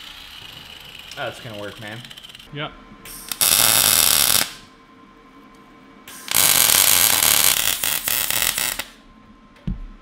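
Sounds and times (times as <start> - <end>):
welding arc crackling: 3.1 - 4.6, 6.1 - 9.0.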